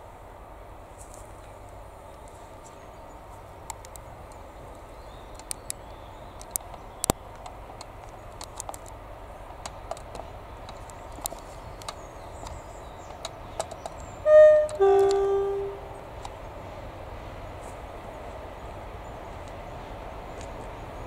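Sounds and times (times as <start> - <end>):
small clicks: 3.7 - 9.0, 14.7 - 15.3
locomotive two-tone horn: 14.2 - 16.0.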